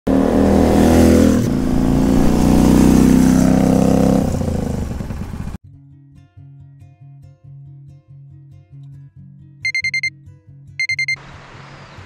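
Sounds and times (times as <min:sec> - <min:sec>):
motorcycle engine passing by: 0:00.1 - 0:05.6.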